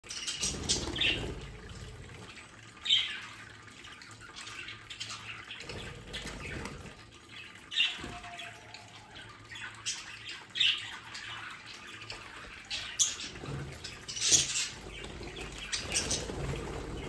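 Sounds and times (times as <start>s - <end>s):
budgerigars chirping and squawking: 0.0s - 17.0s
water fountain trickling: 0.0s - 17.0s.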